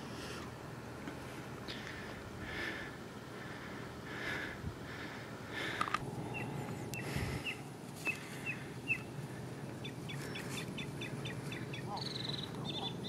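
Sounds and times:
low outdoor rumble: 0:00.0 - 0:13.0
sharp clicks: 0:05.7 - 0:06.1
songbird chirping: 0:06.0 - 0:13.0.

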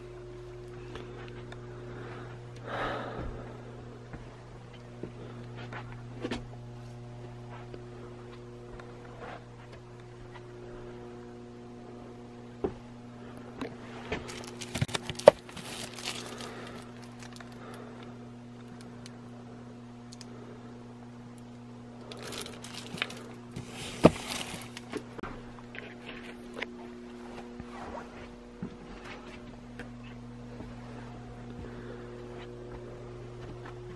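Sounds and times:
steady low hum: 0:00.0 - 0:33.9
books handled on wooden shelves: 0:22.3 - 0:25.1.

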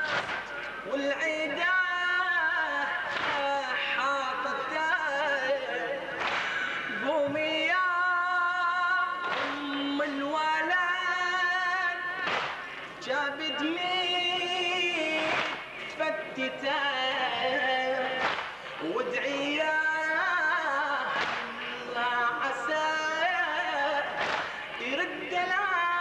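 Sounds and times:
chest-beating slaps: 0:00.0 - 0:00.7, 0:03.1 - 0:03.5, 0:06.2 - 0:06.6, 0:09.2 - 0:09.9, 0:12.2 - 0:12.9, 0:15.1 - 0:15.7, 0:18.2 - 0:18.9, 0:21.1 - 0:21.6, 0:24.2 - 0:24.7
man singing lament amplified: 0:00.0 - 0:26.0.

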